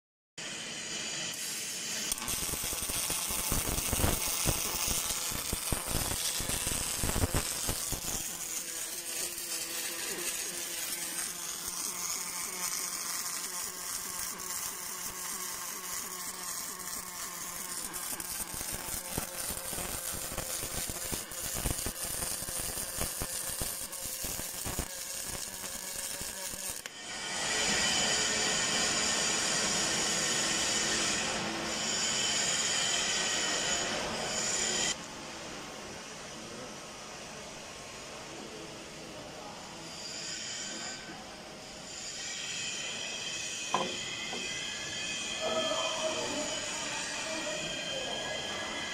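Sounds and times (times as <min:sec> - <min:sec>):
welding arc crackling: 0:01.0 - 0:27.1.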